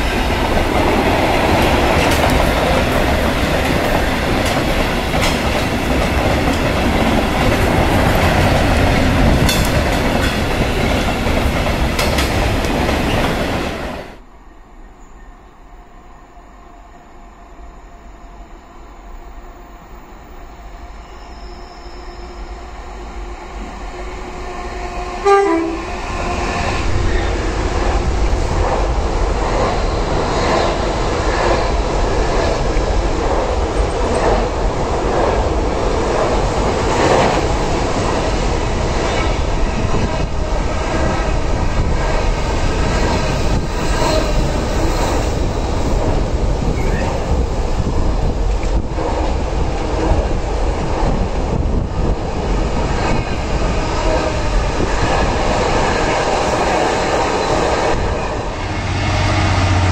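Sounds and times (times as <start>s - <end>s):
train wagons rumbling and clattering: 0.0s - 14.2s, 23.6s - 59.9s
diesel locomotive engine: 16.8s - 59.9s
train horn: 24.2s - 26.6s, 58.4s - 59.9s.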